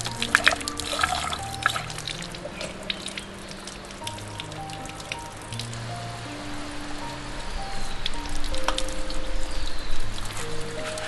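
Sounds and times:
water splashing over hands: 0.0 - 6.0
background music: 0.0 - 11.0.

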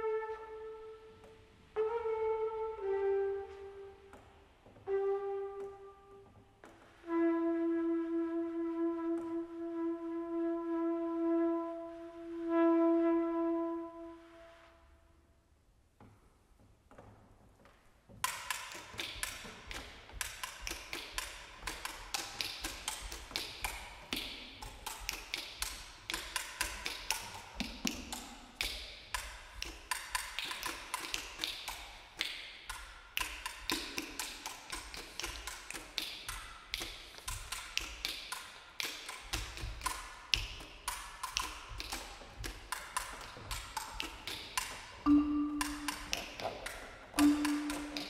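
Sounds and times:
marimba played with mallets: 45.1 - 46.4, 47.2 - 48.0.

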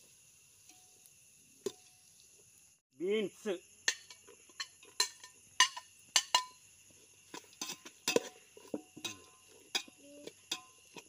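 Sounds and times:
metal spoon clinking and scraping: 3.9 - 6.6, 7.4 - 11.0.

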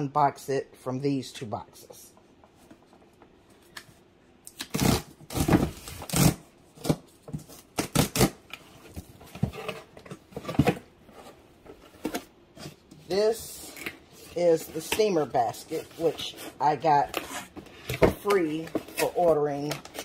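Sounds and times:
cardboard box tearing open: 4.6 - 7.0, 7.6 - 8.4.

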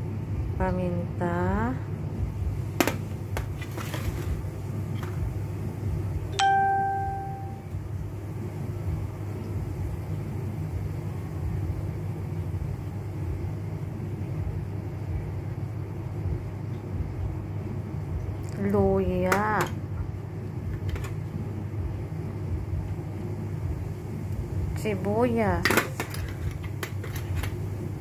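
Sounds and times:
low background hum: 0.0 - 28.0
bright ding: 6.4 - 7.6.

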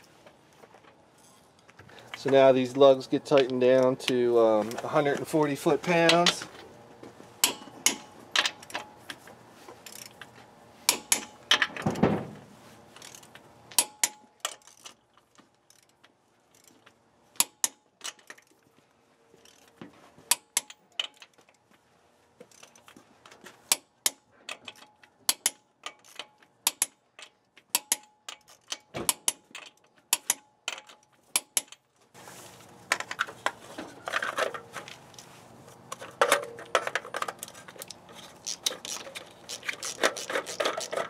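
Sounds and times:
torque wrench clicking: 37.4 - 41.0.

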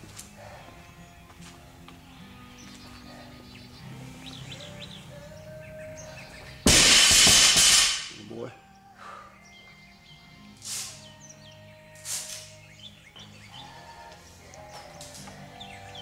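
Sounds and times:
faint background music: 0.0 - 16.0
barbell crashing to floor: 6.7 - 8.2.

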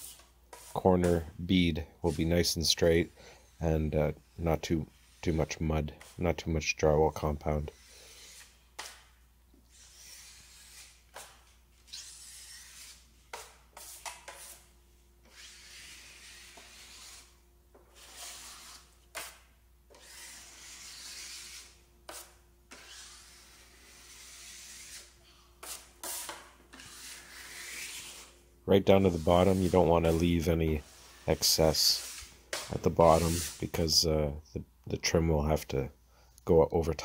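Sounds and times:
drywall knife scraping metal: 0.0 - 1.3, 7.2 - 33.8.

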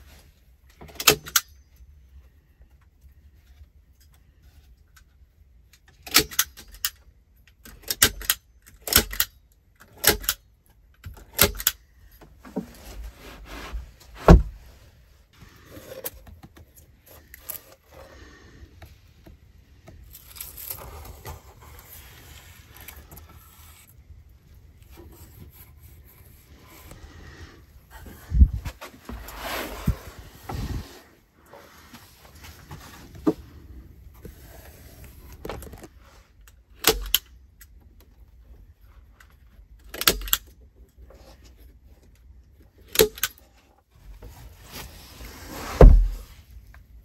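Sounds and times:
scraping against wooden planks: 12.4 - 14.8
heavy wooden thump: 14.2 - 14.6, 45.8 - 46.3.

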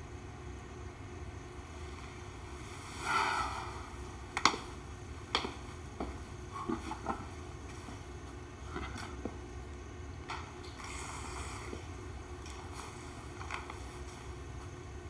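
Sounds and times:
footsteps: 5.3 - 9.4.

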